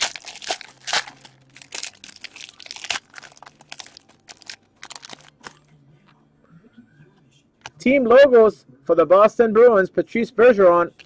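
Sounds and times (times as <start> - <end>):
plastic wrapper crinkling and tearing: 0.0 - 5.6.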